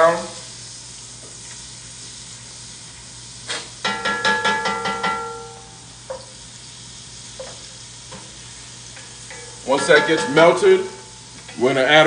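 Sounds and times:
butter sizzling in a pot: 0:00.0 - 0:12.0.

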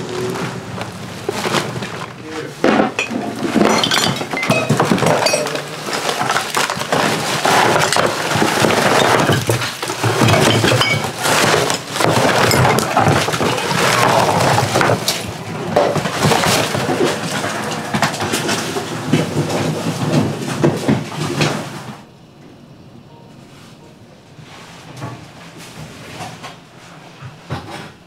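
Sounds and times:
shovel scraping through trash: 0:01.2 - 0:22.0
bottles and jars clinking: 0:02.7 - 0:15.2.

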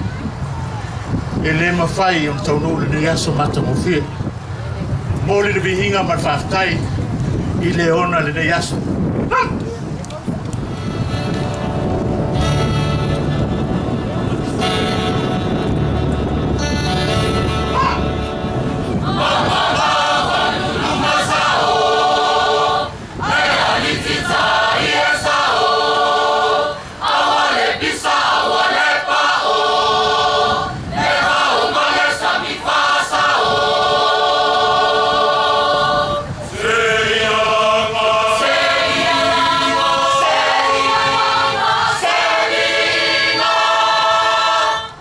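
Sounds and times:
group of voices singing: 0:17.8 - 0:45.0.

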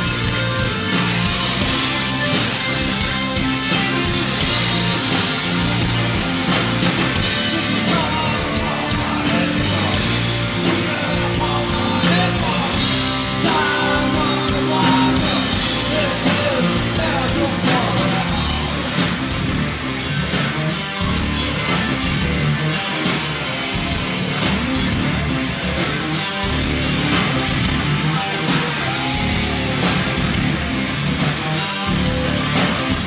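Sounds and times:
drums: 0:00.0 - 0:33.0
electric guitars: 0:00.0 - 0:33.0
keyboards: 0:00.0 - 0:33.0
man singing: 0:07.4 - 0:19.0.

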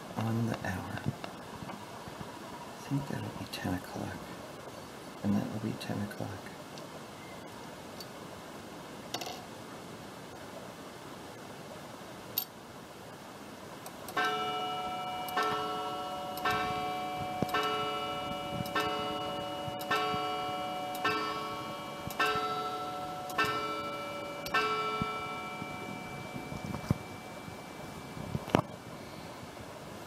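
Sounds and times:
clock click: 0:14.1 - 0:14.4, 0:15.3 - 0:22.5, 0:23.2 - 0:25.2
clock gong striking: 0:14.2 - 0:28.6.

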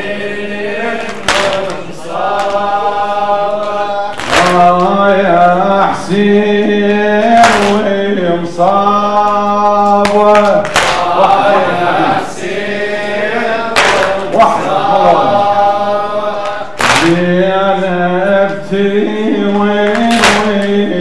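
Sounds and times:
man chanting a mournful lament: 0:02.7 - 0:12.4, 0:14.2 - 0:16.0, 0:17.0 - 0:21.0.

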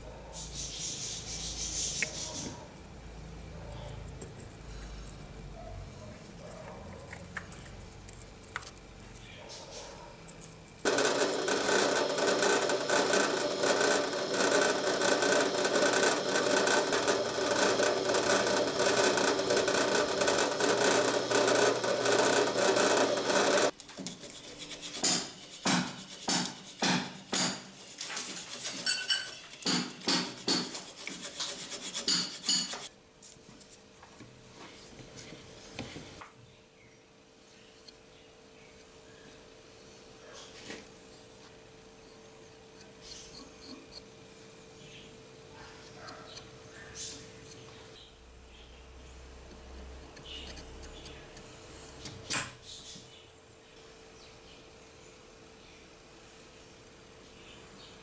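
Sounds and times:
loud steady scraping: 0:10.8 - 0:32.9
hand file scraping on horn: 0:10.9 - 0:26.9, 0:27.7 - 0:32.9.

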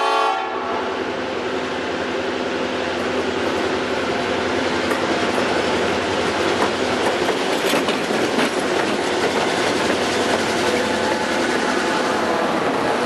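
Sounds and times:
diesel locomotive engines running: 0:00.0 - 0:13.0
steel wheels clacking over rail joints: 0:03.0 - 0:13.0.

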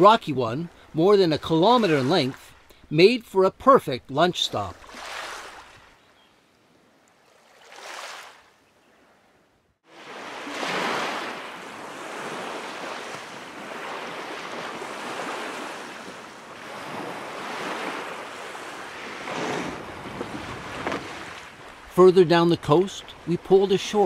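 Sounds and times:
waves washing onto beach: 0:09.9 - 0:24.0
wind on microphone: 0:13.3 - 0:21.7.

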